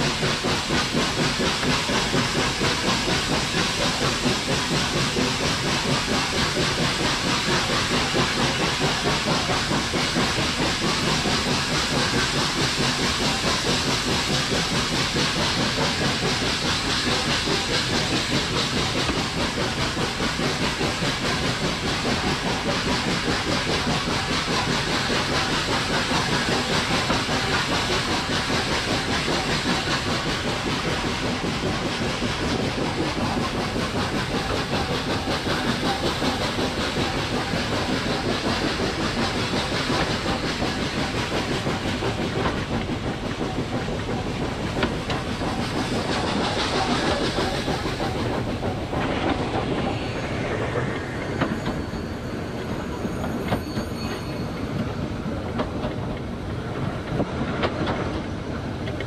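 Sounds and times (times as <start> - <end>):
steam locomotive running: 0.0 - 59.0
wheels on rails: 0.0 - 59.0.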